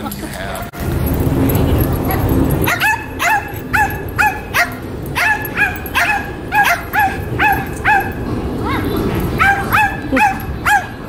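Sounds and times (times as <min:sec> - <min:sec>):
dog yapping: 0:02.6 - 0:11.0.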